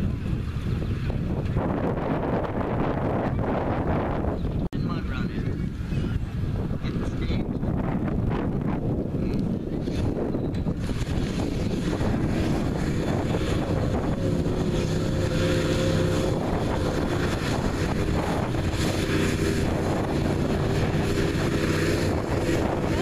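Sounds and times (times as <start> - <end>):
wind buffeting microphone: 0.0 - 23.0
truck engine running hard: 8.7 - 23.0.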